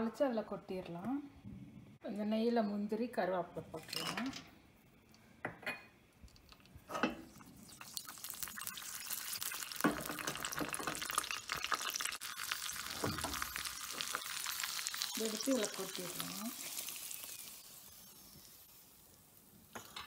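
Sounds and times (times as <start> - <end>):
food sizzling in hot oil: 7.2 - 20.0.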